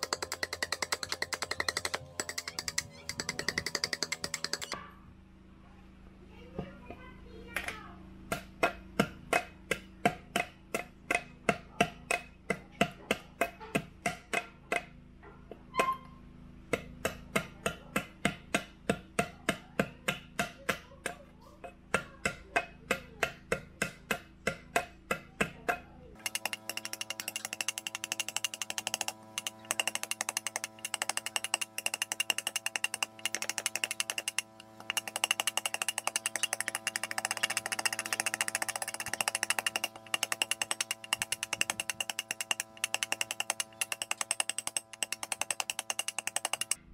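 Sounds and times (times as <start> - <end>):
knife chopping wood: 0.0 - 4.8, 7.6 - 14.9, 16.8 - 21.2, 21.9 - 46.8
steady hum: 26.2 - 46.9.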